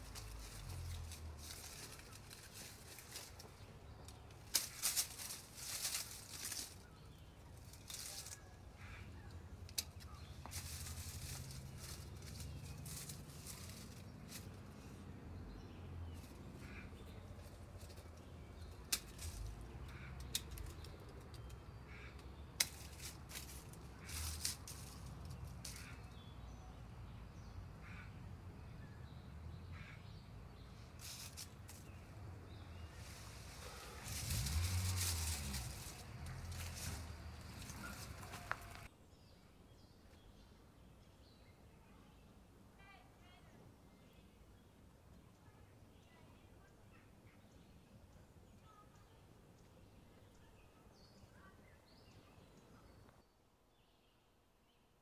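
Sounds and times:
branches clicking: 0:00.0 - 0:14.9, 0:16.2 - 0:26.2, 0:30.9 - 0:38.9
dry leaves rustling: 0:00.0 - 0:26.3, 0:29.7 - 0:38.9
low outdoor rumble: 0:00.0 - 0:38.9.

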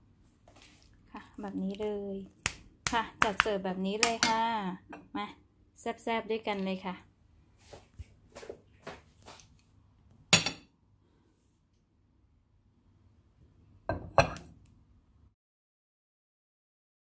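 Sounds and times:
dishes clinking together: 0:10.4 - 0:10.7, 0:13.9 - 0:14.5.

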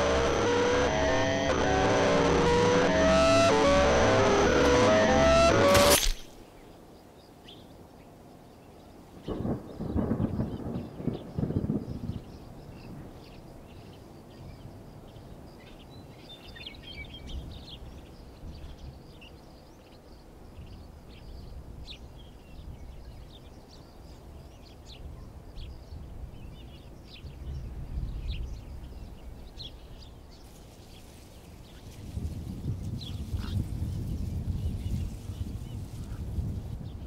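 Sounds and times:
steady low rumble: 0:00.0 - 0:05.9.

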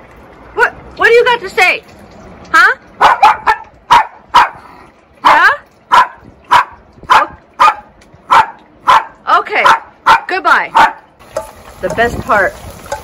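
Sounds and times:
small dog barking: 0:03.0 - 0:04.6, 0:05.2 - 0:11.0.

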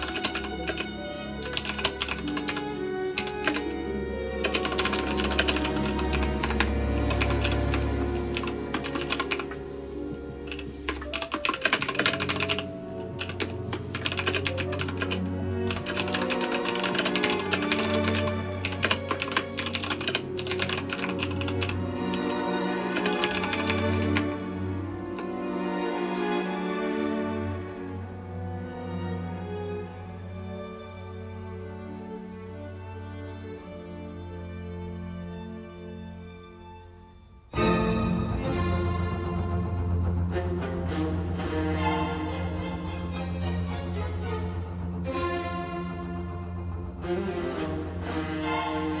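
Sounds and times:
typing on a keyboard: 0:00.0 - 0:03.8, 0:04.4 - 0:09.6, 0:10.5 - 0:24.3
background music: 0:00.0 - 0:49.0
bowed string notes: 0:21.6 - 0:49.0.

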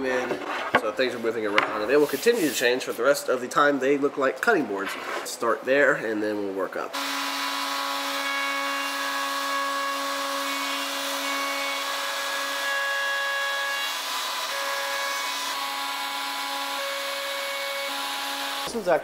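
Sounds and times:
router whining while cutting wood: 0:07.0 - 0:18.7.

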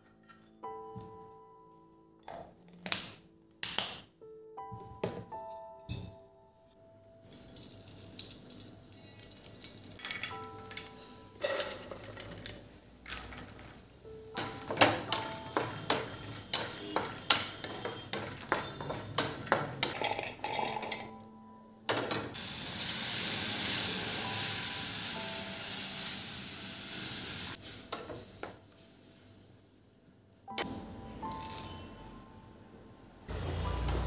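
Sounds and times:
nuts stirred in a metal pan: 0:14.4 - 0:19.9.

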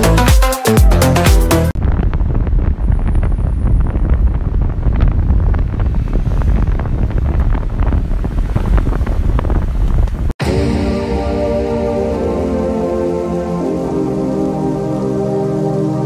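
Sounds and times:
road and engine rumble: 0:01.7 - 0:11.0
wind buffeting microphone: 0:01.8 - 0:10.4.

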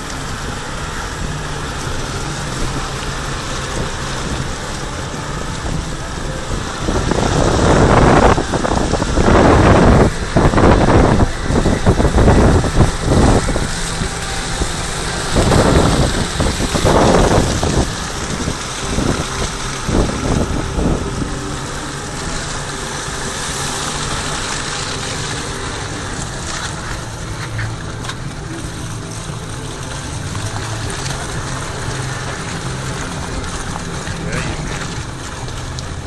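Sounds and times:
wind buffeting microphone: 0:00.0 - 0:28.6
truck engine running low: 0:00.0 - 0:36.0
tyre and road noise: 0:00.0 - 0:36.0.

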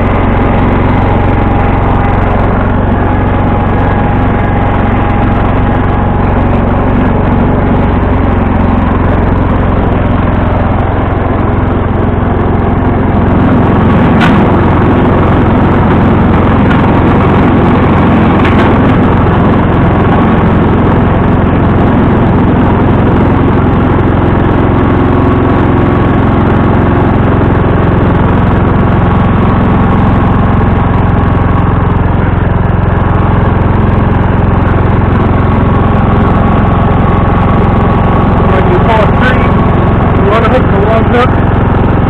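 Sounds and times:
tractor engine running: 0:00.0 - 0:42.0.

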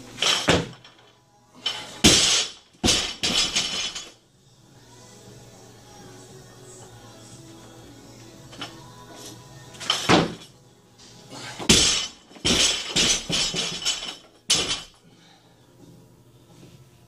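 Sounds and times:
barbell crashing onto platform: 0:00.2 - 0:00.8, 0:02.0 - 0:04.0, 0:09.8 - 0:10.5, 0:11.7 - 0:14.9
barbell bouncing and rattling: 0:00.2 - 0:00.9, 0:02.0 - 0:04.1, 0:11.7 - 0:14.9.

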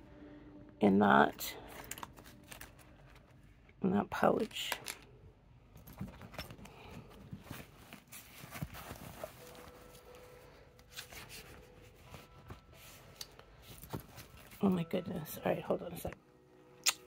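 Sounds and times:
bag handling rustling: 0:01.6 - 0:03.4, 0:05.7 - 0:14.8.

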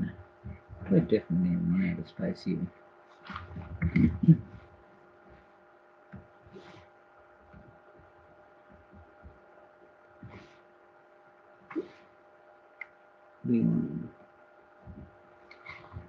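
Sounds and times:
faint steady hum: 0:00.0 - 0:16.0
person mumbling: 0:03.6 - 0:04.6, 0:13.5 - 0:14.1.

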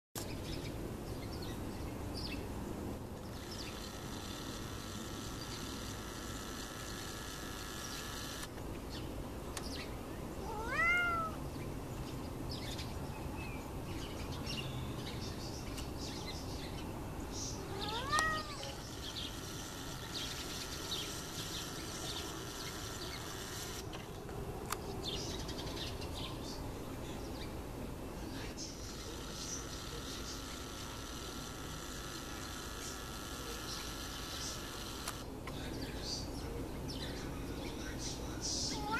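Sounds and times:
cat meowing: 0:10.4 - 0:11.4, 0:17.6 - 0:18.9.

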